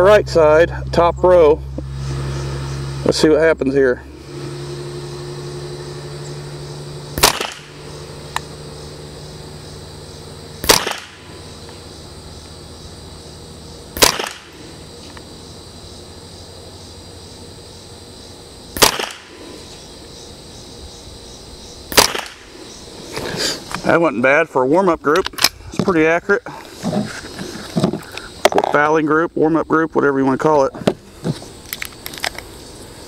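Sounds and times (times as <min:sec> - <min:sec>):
rifle shots: 0:07.2 - 0:08.0, 0:10.6 - 0:11.3, 0:14.0 - 0:14.6, 0:18.8 - 0:19.4, 0:21.9 - 0:22.5.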